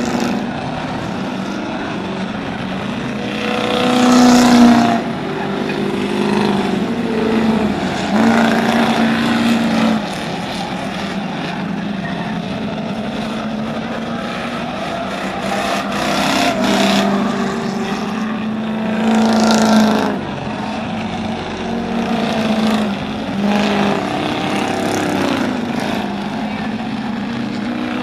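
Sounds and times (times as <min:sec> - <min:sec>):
race car engines passing: 0:00.0 - 0:28.0.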